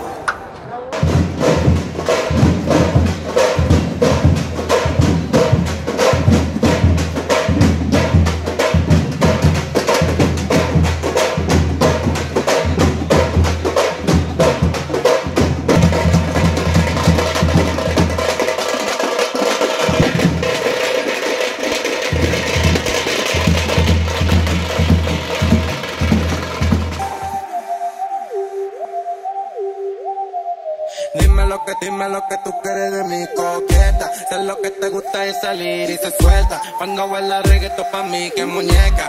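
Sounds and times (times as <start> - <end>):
reggaeton music with heavy bass: 26.4 - 39.0.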